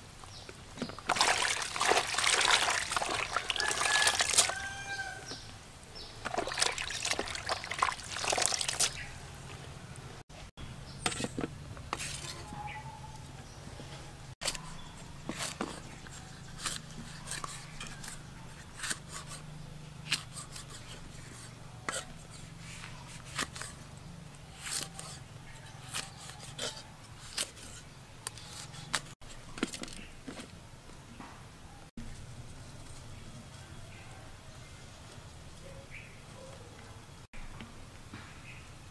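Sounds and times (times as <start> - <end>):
wet food rustling in colander: 0.8 - 5.2, 6.2 - 9.6.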